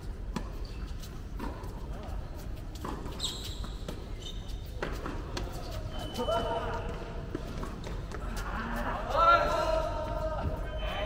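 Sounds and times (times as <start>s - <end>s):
shoe squeak on court: 0.4s - 1.6s, 2.8s - 6.9s.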